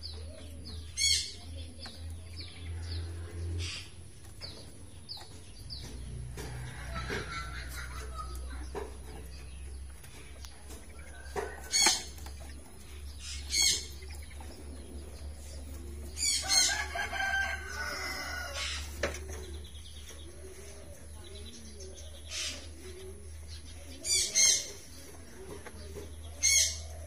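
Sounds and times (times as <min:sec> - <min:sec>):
rooster crowing: 0:16.4 - 0:18.8.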